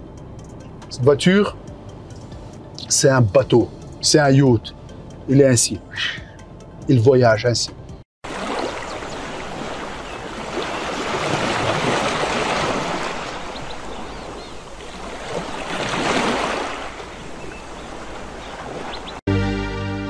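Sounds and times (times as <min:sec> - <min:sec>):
sea waves washing: 0:08.2 - 0:19.2.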